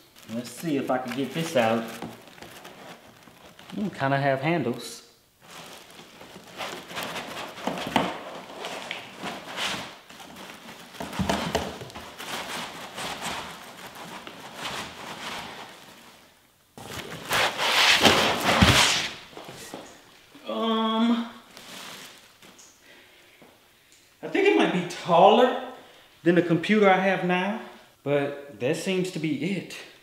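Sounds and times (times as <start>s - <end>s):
plastic wrapping rustling: 0.0s - 20.3s, 21.4s - 23.1s
foam scraping cardboard: 5.5s - 16.2s, 16.9s - 19.3s.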